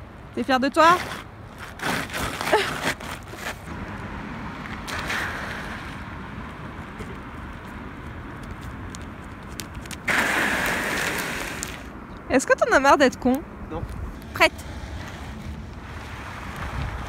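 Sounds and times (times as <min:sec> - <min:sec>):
car passing: 0:03.4 - 0:17.0
wind on microphone: 0:13.6 - 0:17.0.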